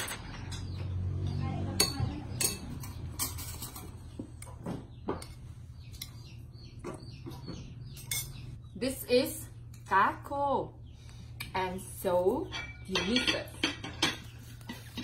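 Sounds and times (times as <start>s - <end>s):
spoons clinking against bowls: 1.8s - 4.0s, 8.0s - 8.4s, 12.4s - 15.0s.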